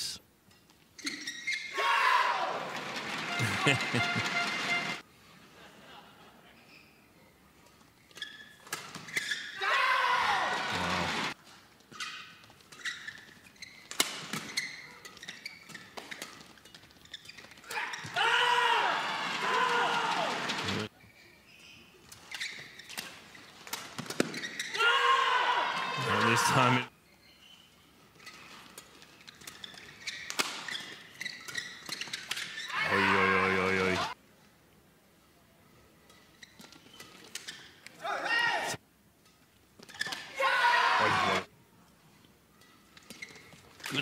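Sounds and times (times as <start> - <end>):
court shoes squeaking: 0.5 - 1.8, 2.8 - 5.0, 6.5 - 9.6, 10.8 - 18.2, 20.5 - 24.8, 27.0 - 33.1, 36.0 - 38.0, 39.8 - 40.3, 42.6 - 44.0.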